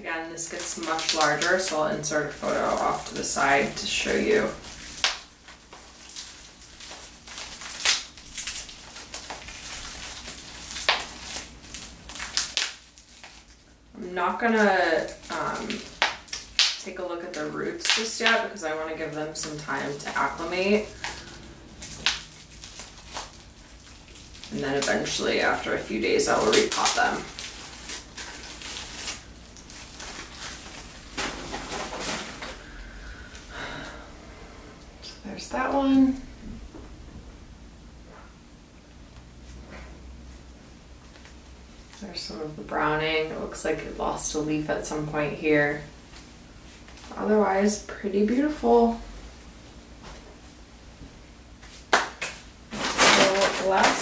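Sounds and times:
rustling plant handling: 0.4s - 13.8s, 17.2s - 33.4s, 52.7s - 54.0s
plastic pot crinkling: 0.4s - 32.7s, 51.6s - 54.0s
sharp plastic cracks: 4.8s - 13.6s, 15.0s - 18.4s, 20.9s - 25.0s
plastic pot scraping: 52.7s - 54.0s.

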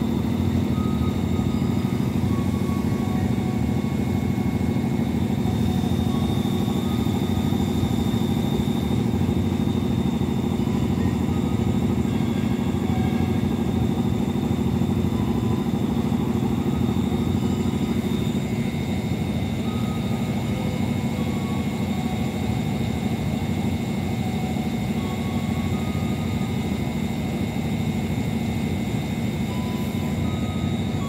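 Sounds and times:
trains idling hum: 0.0s - 31.0s.

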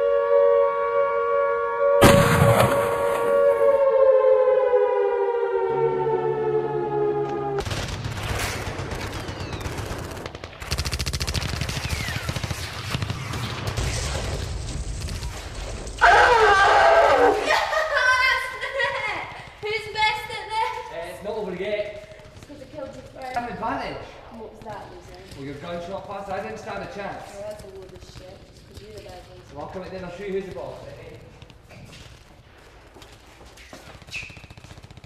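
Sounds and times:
laser-tag gunfire: 2.0s - 3.3s, 7.6s - 15.7s
loud hit: 2.0s - 3.5s
droning tone sliding down: 2.6s - 7.6s.

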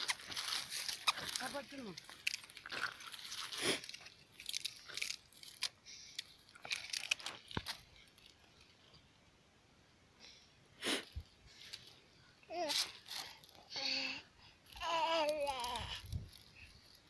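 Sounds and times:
dry leaves rustling and crackling: 0.0s - 5.7s.

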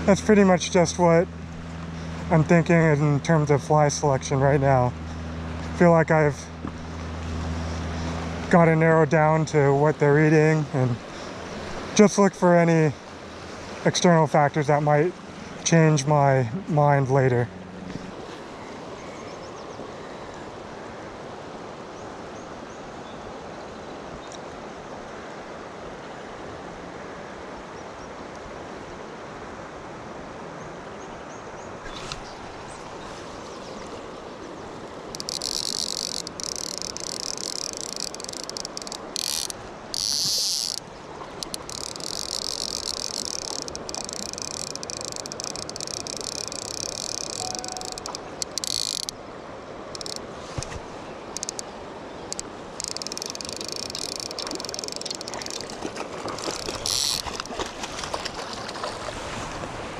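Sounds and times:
river water running: 0.0s - 59.9s
fishing reel clicker buzzing: 35.1s - 49.2s, 49.9s - 50.3s, 51.3s - 55.8s, 56.4s - 57.5s.

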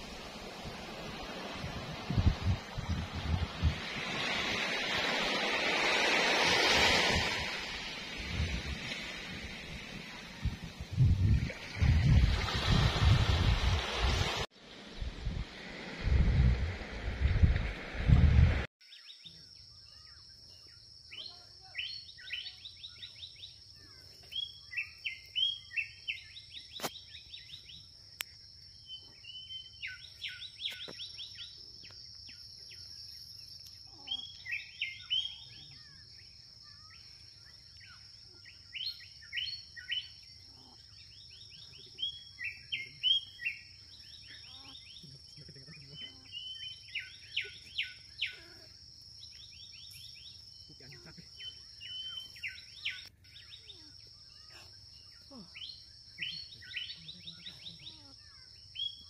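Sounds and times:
wind noise: 0.0s - 18.7s
birds chirping: 18.8s - 59.0s.

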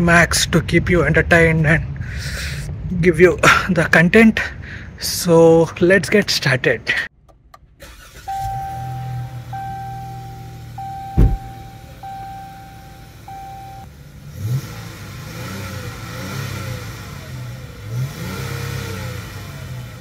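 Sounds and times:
car engine running: 7.2s - 20.0s
car warning chime beeps: 8.0s - 13.9s
loud thump: 11.1s - 11.7s.

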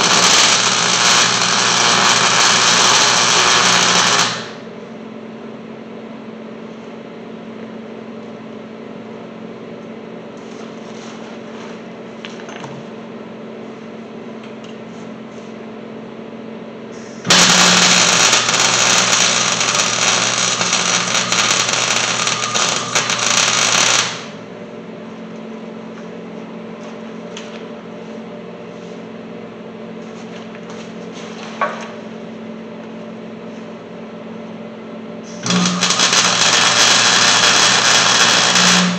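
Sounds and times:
welder crackling: 0.0s - 4.6s, 17.3s - 24.4s, 35.3s - 38.9s.

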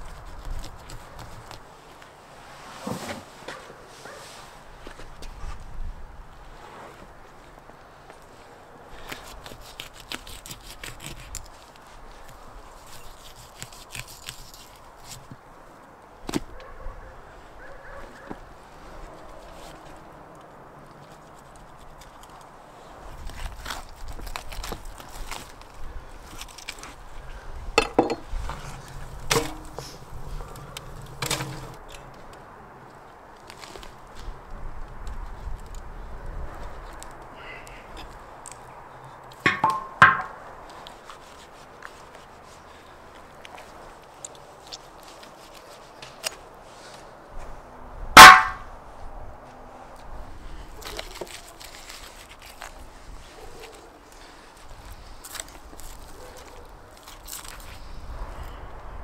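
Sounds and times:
wooden planks knocking on tandoor: 39.5s - 40.4s.

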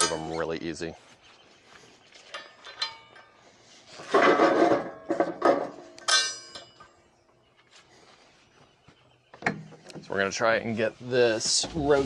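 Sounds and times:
metal clang: 0.0s - 0.5s, 2.3s - 3.4s, 4.1s - 7.0s
metal clinks: 2.3s - 3.4s, 6.0s - 7.0s.

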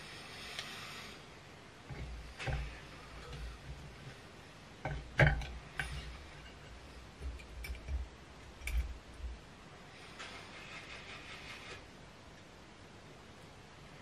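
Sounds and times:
soft handling bumps: 1.8s - 9.4s.

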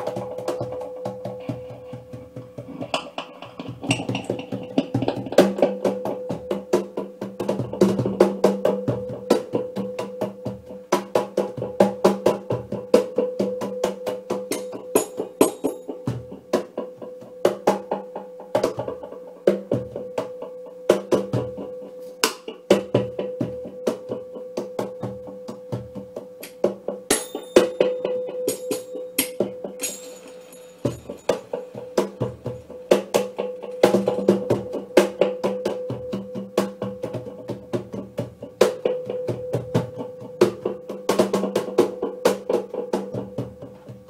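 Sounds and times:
snare drum and cajon played by hand: 0.0s - 20.3s, 30.8s - 44.0s
metallic shimmer: 27.1s - 32.8s.

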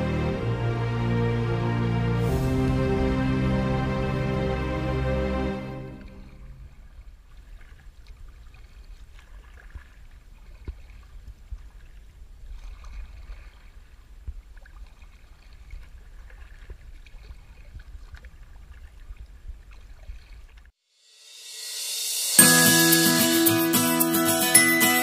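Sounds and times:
paddle splashing and dripping: 5.8s - 20.8s.

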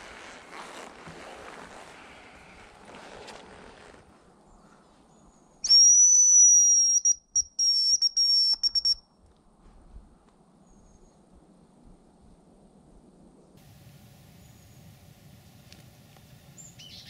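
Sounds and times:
decoy whistle blown: 5.6s - 9.0s.

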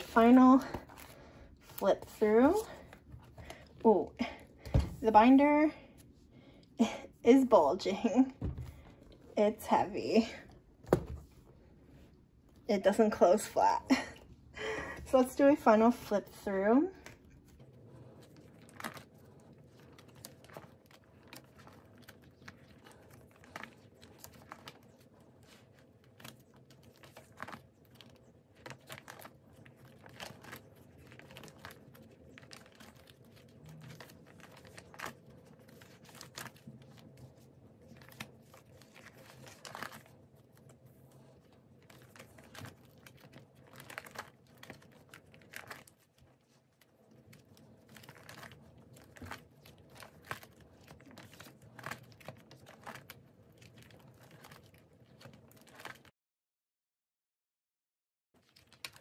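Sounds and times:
plastic binder pages turning: 0.0s - 3.9s, 15.4s - 56.1s, 58.4s - 59.0s
plastic crinkling: 15.1s - 56.1s, 58.4s - 59.0s.

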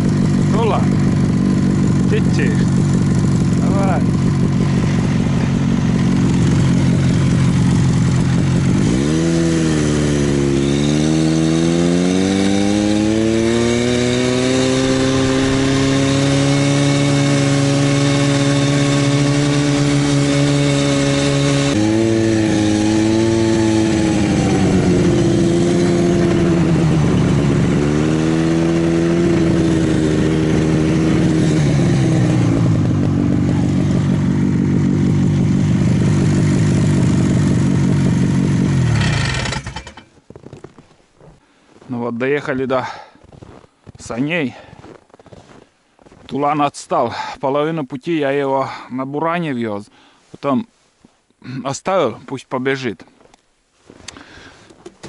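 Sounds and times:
snowmobile engine revving: 0.0s - 40.0s.

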